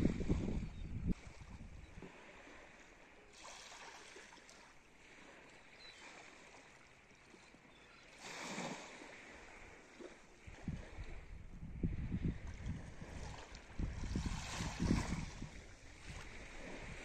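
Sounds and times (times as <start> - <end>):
small waves washing: 0.0 - 17.0.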